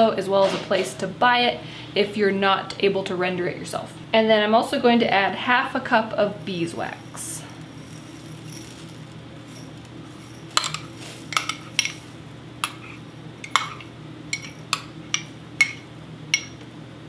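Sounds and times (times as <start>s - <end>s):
metal spoon clinking: 6.8s - 16.6s.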